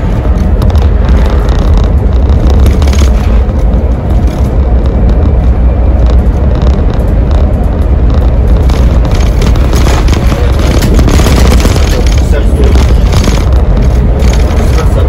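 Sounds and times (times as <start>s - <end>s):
bus engine and road drone: 0.0s - 15.0s.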